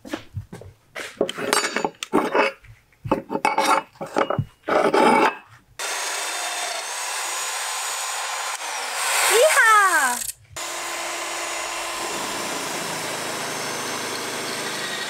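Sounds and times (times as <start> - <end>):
rasping filing strokes: 5.8 - 9.9
power tool whirring: 5.8 - 15.0.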